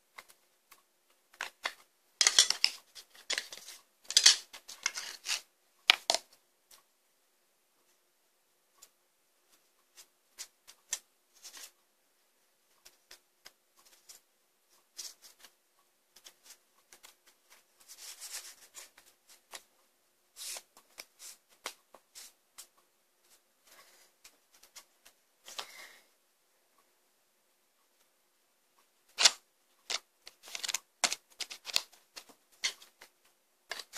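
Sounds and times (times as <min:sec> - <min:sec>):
cards flicking and clicking: 0:29.1 - 0:33.1.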